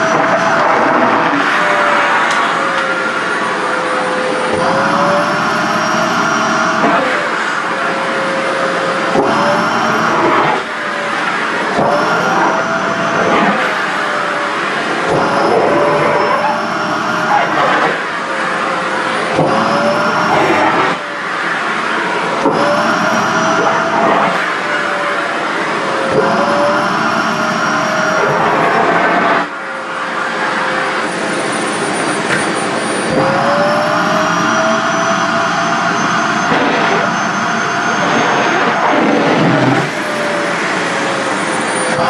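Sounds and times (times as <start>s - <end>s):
stick vacuum cleaner sucking fabric: 0.0s - 42.0s.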